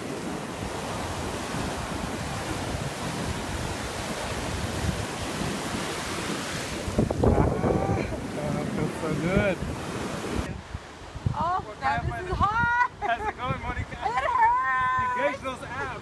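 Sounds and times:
surf breaking on beach: 0.0 - 12.7
wind on microphone: 0.0 - 16.0.

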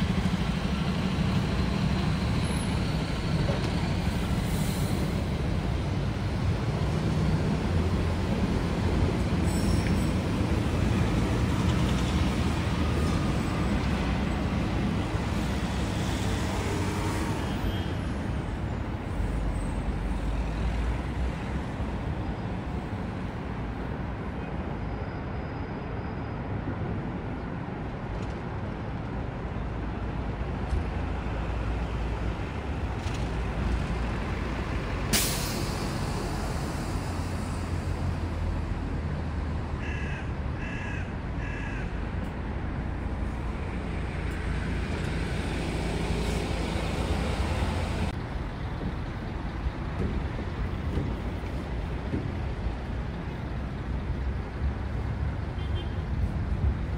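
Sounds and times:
road traffic rumble: 0.0 - 56.9
crow cawing: 39.8 - 42.0.

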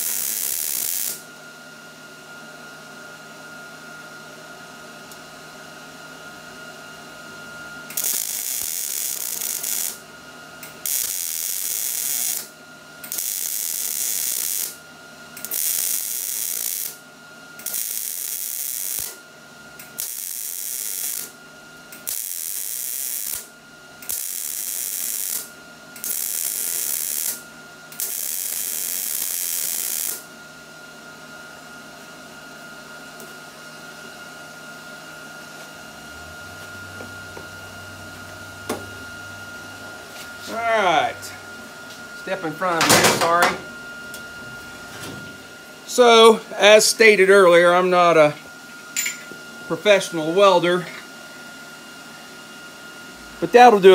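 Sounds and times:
welding arc crackling: 0.0 - 1.2, 7.9 - 10.0, 10.6 - 14.8, 15.4 - 17.0, 17.6 - 19.2, 19.8 - 21.4, 22.0 - 27.4, 28.0 - 30.3.

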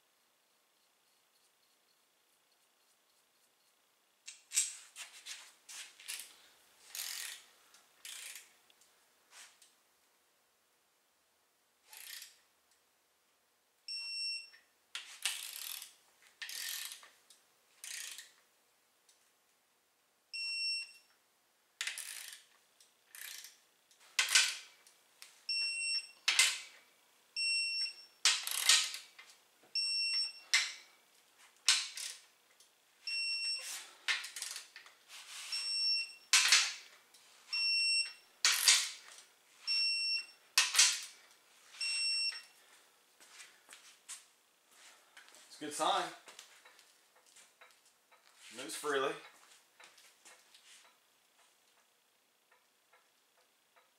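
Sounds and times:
ratchet wrench rasping: 6.9 - 7.4, 8.0 - 8.5, 11.9 - 12.4, 15.2 - 17.1, 17.8 - 18.3, 21.8 - 22.5, 23.1 - 23.6
short high beeps: 41.8 - 42.5.

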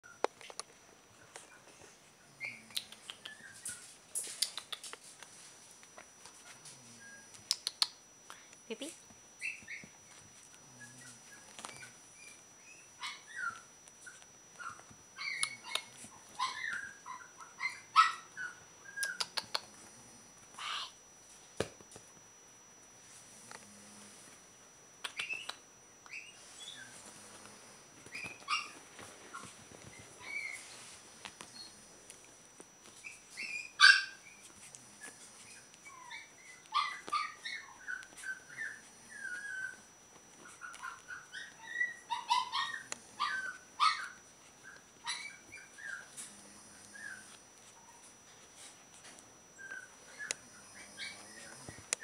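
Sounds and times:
puppy yipping and barking: 11.6 - 19.3, 28.1 - 29.5, 33.0 - 34.4, 35.8 - 39.8, 40.4 - 46.1.

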